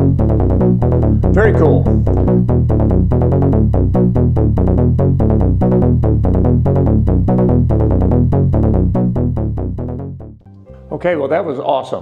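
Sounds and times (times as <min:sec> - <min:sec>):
synthesizer bass sequence: 0:00.0 - 0:10.4.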